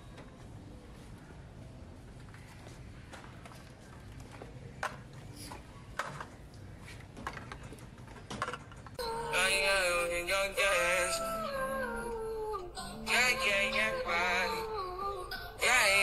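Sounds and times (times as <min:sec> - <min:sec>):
low background hum: 0:00.0 - 0:16.0
music with singing: 0:09.0 - 0:16.0.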